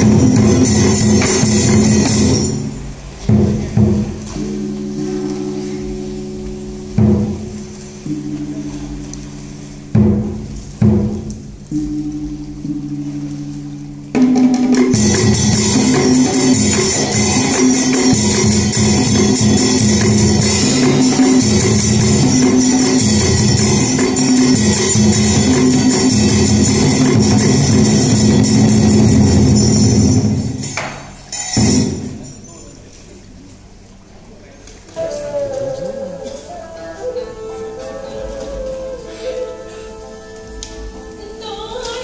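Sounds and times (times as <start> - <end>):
drums and clashing cymbals: 0.0 - 5.9, 9.8 - 13.2, 14.1 - 32.6.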